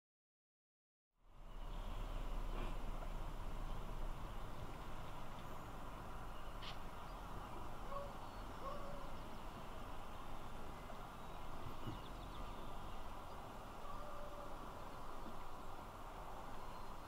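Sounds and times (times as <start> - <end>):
open country background noise: 1.2 - 17.0
faint short bird calls: 7.9 - 9.2.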